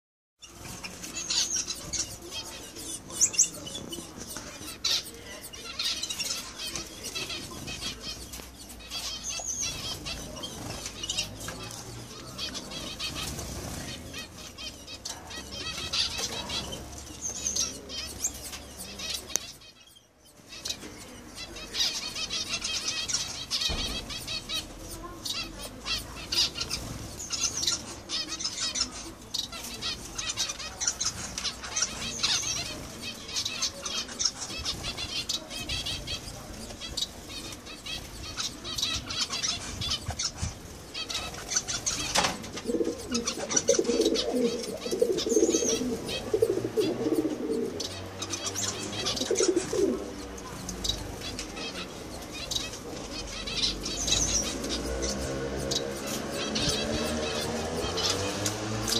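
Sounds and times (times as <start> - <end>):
small birds chirping: 0.4 - 58.9
sharp knock: 23.7 - 24.2.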